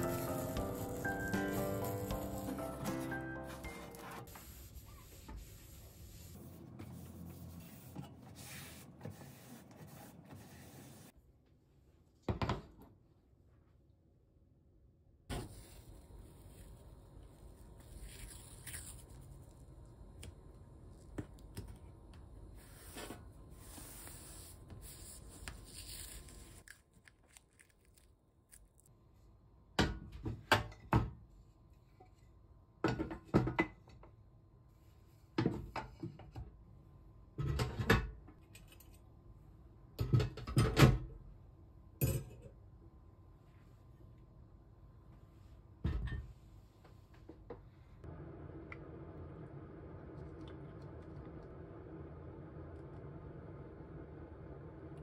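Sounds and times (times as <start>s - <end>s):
rubbing and peeling on hob: 0.0s - 11.1s.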